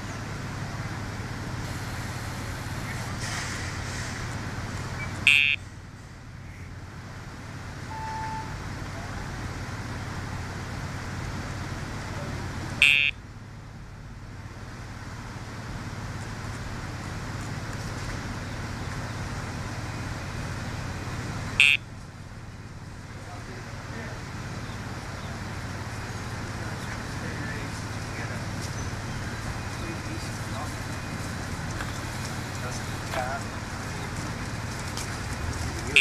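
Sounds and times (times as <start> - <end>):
traffic hum: 0.0 - 36.0
short loud pager buzz: 7.9 - 8.6, 12.8 - 13.1.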